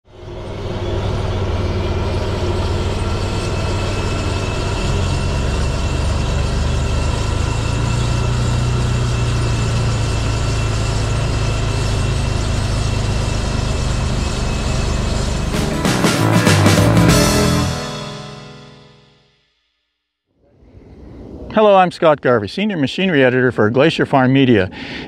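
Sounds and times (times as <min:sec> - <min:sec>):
tracked machine engine droning: 0:00.1 - 0:19.2.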